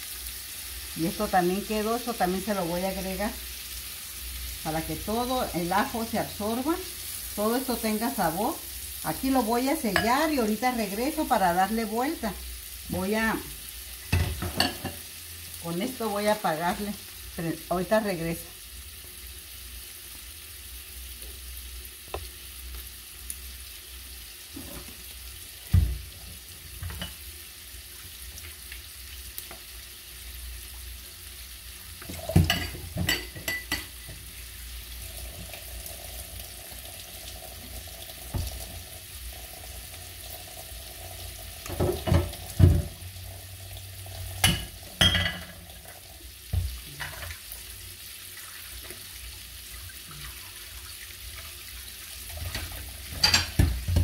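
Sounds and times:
chicken sizzling in a frying pan: 0.0s - 54.0s
sharp cracks of frying: 21.1s - 24.2s, 24.9s - 30.9s.

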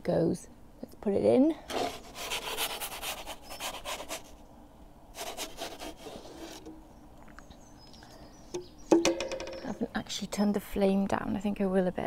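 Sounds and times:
wooden peel scraping on stone: 1.7s - 4.3s, 5.2s - 6.8s.

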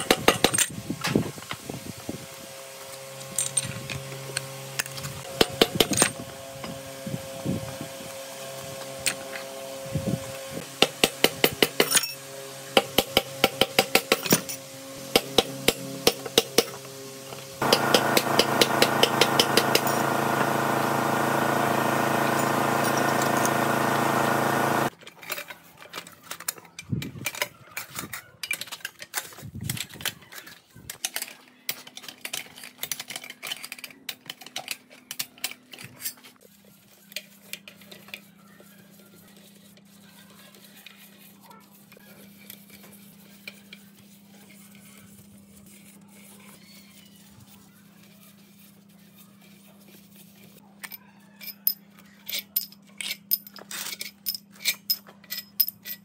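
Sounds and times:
metal tools clinking: 50.9s - 56.0s.

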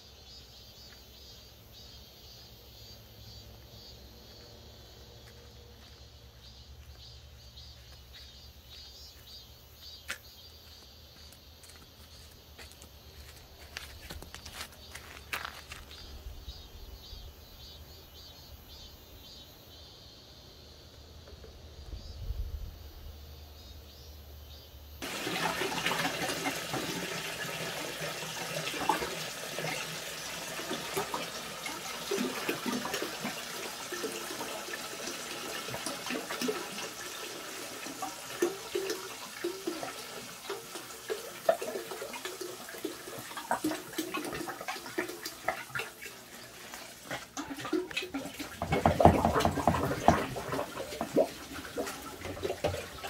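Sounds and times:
tap water running and splashing: 7.8s - 16.1s, 25.0s - 53.0s
small knocks and clatter: 47.1s - 51.3s.

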